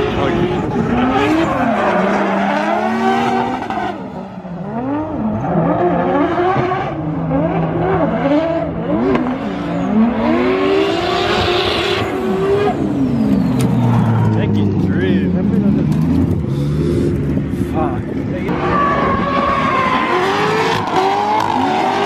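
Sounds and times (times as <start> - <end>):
car engines revving hard: 0.0 - 22.0
tires squealing on pavement: 0.1 - 4.2, 18.5 - 22.0.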